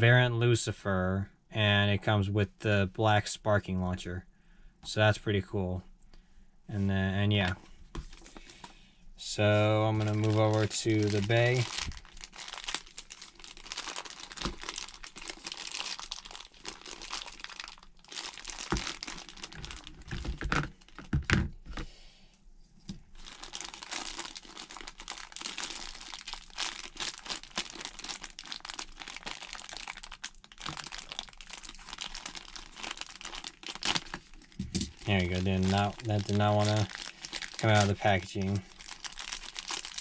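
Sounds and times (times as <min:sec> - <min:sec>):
plastic bag crinkling: 0:09.6 - 0:21.3, 0:23.1 - 0:40.0.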